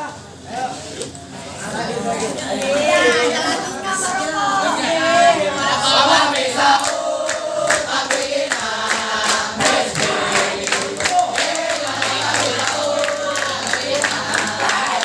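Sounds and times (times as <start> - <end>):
boys chanting in unison: 2.6 - 15.0
hand-clapping: 6.4 - 15.0.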